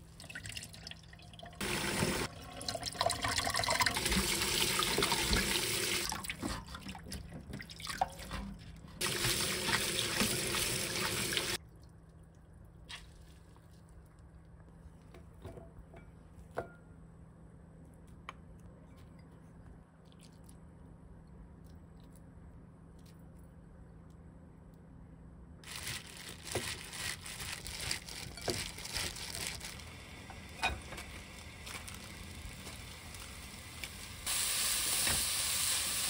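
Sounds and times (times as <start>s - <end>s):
tap water running into a colander: 0.2s - 11.6s.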